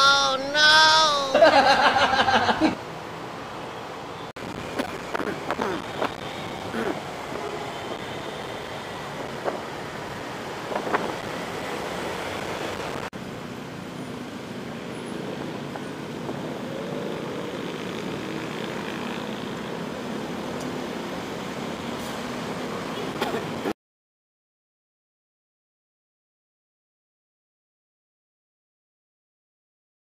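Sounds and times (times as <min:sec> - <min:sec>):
scooter riding in traffic: 0:00.0 - 0:23.8.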